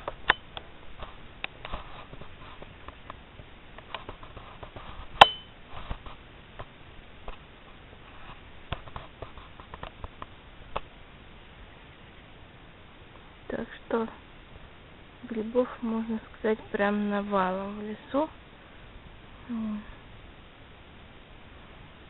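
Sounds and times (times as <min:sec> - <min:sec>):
ringing clink: 0:05.2 - 0:05.6.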